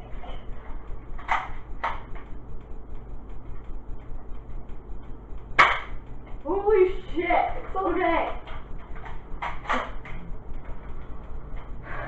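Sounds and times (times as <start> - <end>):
steady low hum: 0.0 - 12.0
sharp plastic snap: 5.6 - 6.0.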